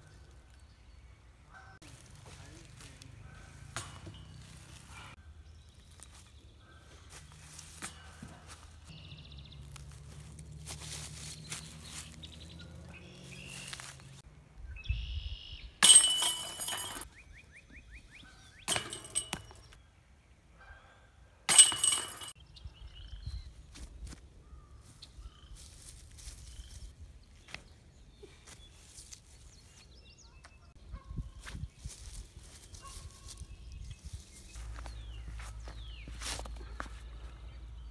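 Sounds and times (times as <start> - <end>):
birds chirping: 0.0 - 37.9
disc hitting chain basket: 3.6 - 4.8, 7.6 - 8.4, 15.8 - 17.1, 18.7 - 19.8, 21.5 - 22.4.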